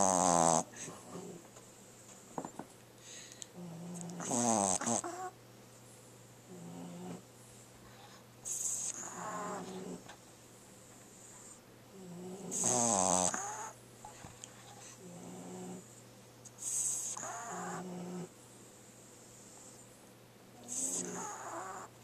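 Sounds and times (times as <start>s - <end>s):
dog snoring: 0.0s - 1.4s, 3.6s - 5.4s, 6.5s - 7.2s, 7.9s - 10.1s, 11.2s - 14.2s, 14.8s - 15.9s, 16.6s - 18.3s, 20.6s - 22.0s.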